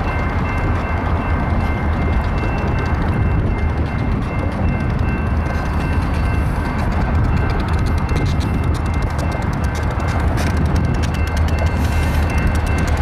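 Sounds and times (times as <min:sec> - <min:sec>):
diesel locomotive engines rumbling: 0:00.0 - 0:13.0.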